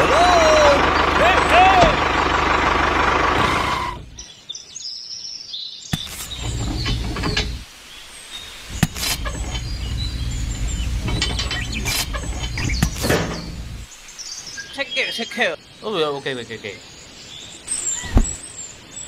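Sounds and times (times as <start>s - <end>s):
small diesel engine chugging: 0.0s - 4.3s, 6.4s - 7.6s, 8.7s - 13.9s
birds chirping: 0.0s - 19.0s.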